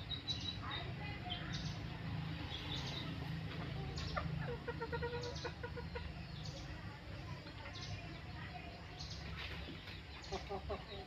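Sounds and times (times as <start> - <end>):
chicken clucking: 2.4 - 11.0.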